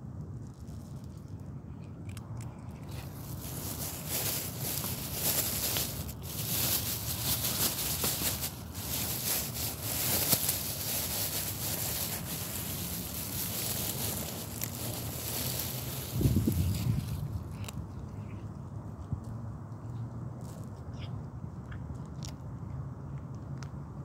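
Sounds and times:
kitten crunching dry kibble: 0.0s - 19.4s, 20.0s - 23.9s
rustling hiss: 2.8s - 17.6s.

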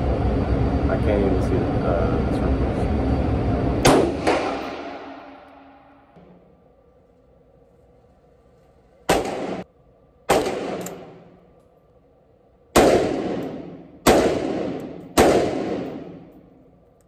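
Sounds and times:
rifle shots echoing indoors: 3.8s - 6.4s, 9.0s - 11.6s, 12.6s - 16.9s.

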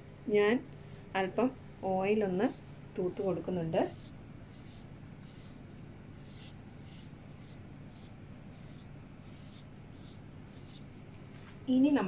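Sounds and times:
low steady hum: 0.0s - 12.0s
pastry brush swishing on dough: 6.2s - 10.9s.

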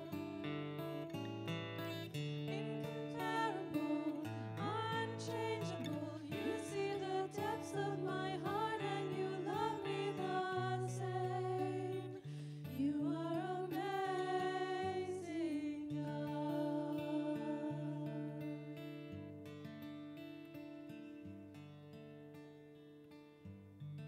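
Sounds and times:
strummed acoustic guitars: 0.0s - 24.0s
women singing: 2.4s - 19.2s.

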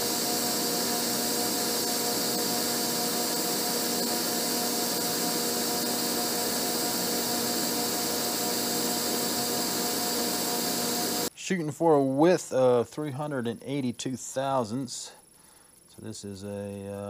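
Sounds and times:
machine hum: 0.0s - 11.3s
milling cutter cutting metal: 0.0s - 11.3s.

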